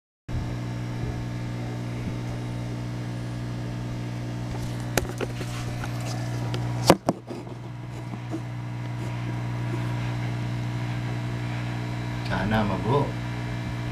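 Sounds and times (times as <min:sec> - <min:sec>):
low electrical hum: 0:00.3 - 0:13.9
camera handling knocks: 0:04.9 - 0:05.9, 0:06.8 - 0:08.4.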